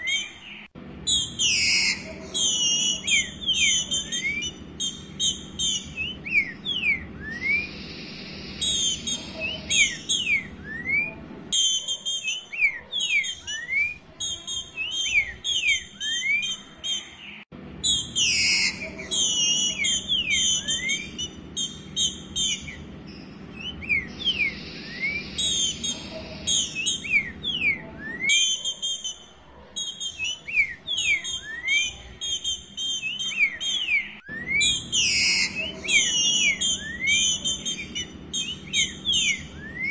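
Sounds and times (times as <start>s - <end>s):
bird rising whistled notes: 0.0s - 14.0s, 23.5s - 29.2s, 29.9s - 39.9s
bird sharp chattering notes: 0.0s - 39.9s.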